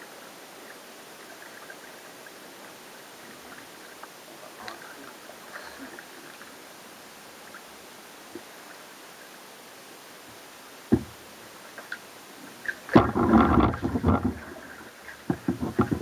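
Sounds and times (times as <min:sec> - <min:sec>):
water hiss from paddling: 0:00.0 - 0:16.0
water drips and ticks: 0:00.7 - 0:06.6, 0:10.9 - 0:16.0.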